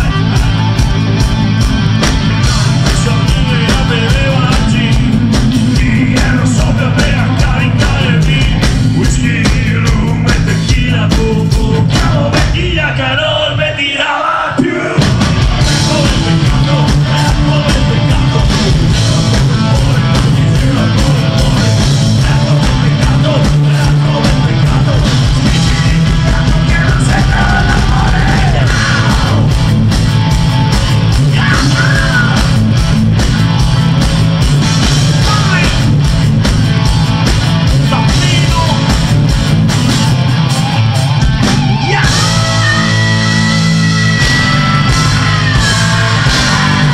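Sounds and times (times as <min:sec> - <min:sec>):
live rock band: 0:00.0 - 0:46.9
person singing and shouting: 0:02.8 - 0:29.5, 0:31.2 - 0:32.7, 0:35.1 - 0:35.9, 0:37.9 - 0:39.0, 0:41.6 - 0:46.9.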